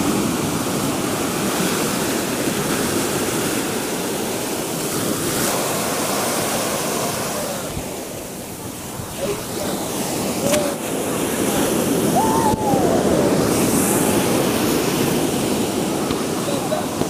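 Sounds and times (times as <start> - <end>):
sea surf washing over shore: 0.0 - 17.0.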